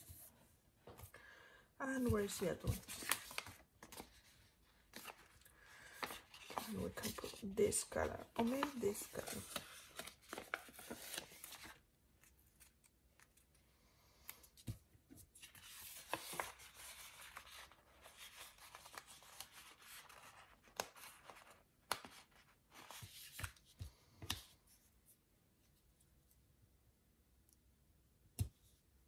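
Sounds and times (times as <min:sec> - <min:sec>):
paper rustling and crinkling: 0:02.0 - 0:13.4, 0:15.2 - 0:23.7.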